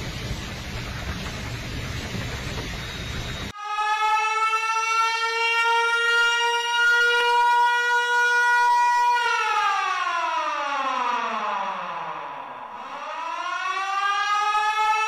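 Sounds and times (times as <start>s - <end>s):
warning siren wailing: 3.4s - 15.0s.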